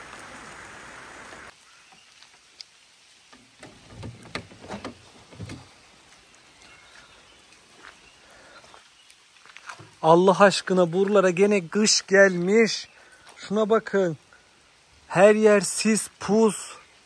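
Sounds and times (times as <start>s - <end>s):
rain hiss: 0.0s - 17.0s
small knocks: 3.3s - 5.7s.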